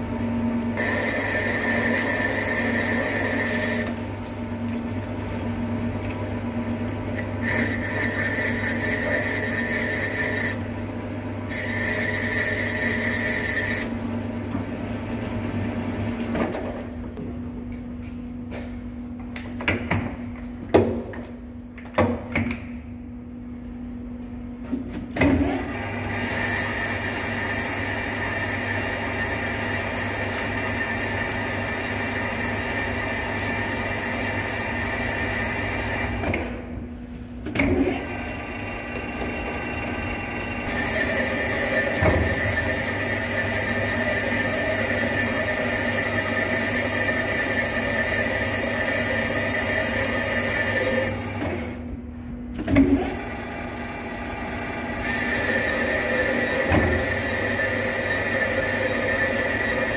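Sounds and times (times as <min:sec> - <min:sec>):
lathe spindle running: 0:00.2 - 0:04.0, 0:07.4 - 0:10.6, 0:11.5 - 0:13.9, 0:25.6 - 0:36.3, 0:38.0 - 0:51.8, 0:52.9 - 0:59.9.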